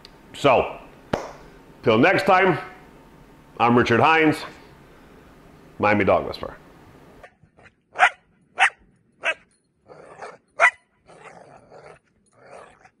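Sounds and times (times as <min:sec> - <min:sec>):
dog barking: 0:08.0 - 0:09.4, 0:10.6 - 0:10.8.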